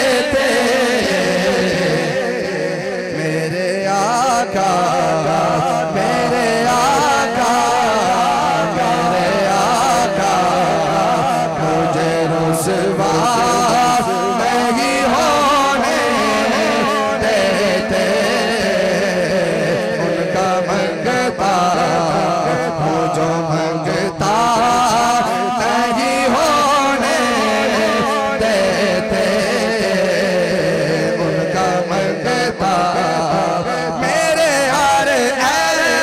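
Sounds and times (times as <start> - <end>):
man singing through microphone: 0.0 - 36.0.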